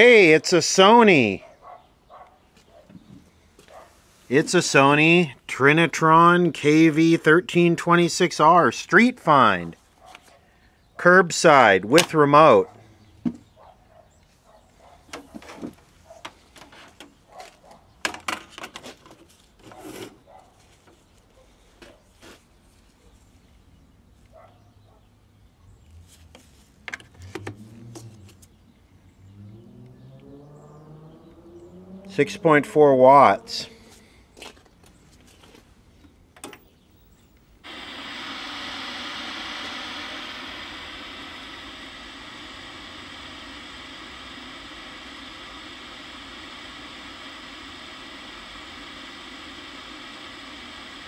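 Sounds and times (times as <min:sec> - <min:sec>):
tv static hiss: 0:04.3 - 0:09.8, 0:11.0 - 0:12.6, 0:37.6 - 0:51.0.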